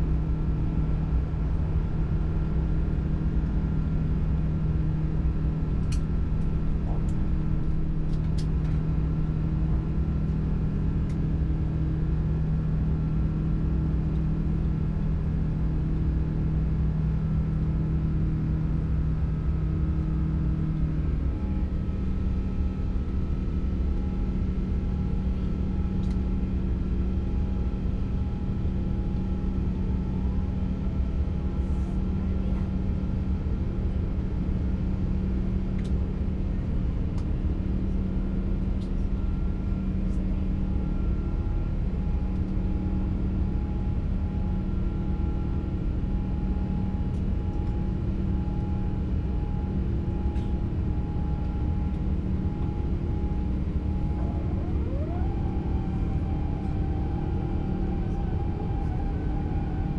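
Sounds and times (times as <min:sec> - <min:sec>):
jet engine drone in cabin: 0:00.0 - 0:59.9.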